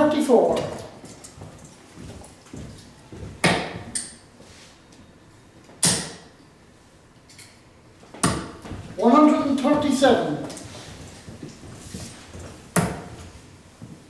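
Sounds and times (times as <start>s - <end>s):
darts striking dartboard: 3.4s - 3.9s, 5.8s - 6.3s, 8.2s - 8.6s, 12.8s - 13.1s.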